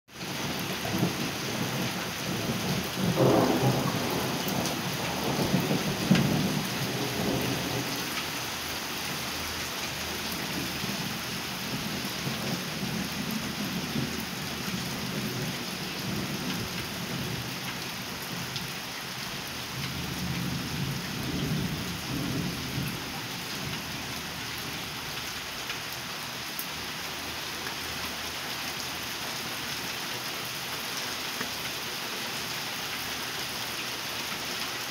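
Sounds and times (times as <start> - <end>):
steady rain hissing: 0.2 - 34.9
rolling thunder rumbling: 0.9 - 8.1.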